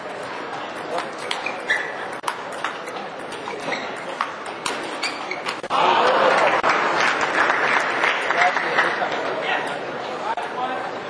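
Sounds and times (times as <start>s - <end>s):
crowd cheering and applause: 5.7s - 8.9s.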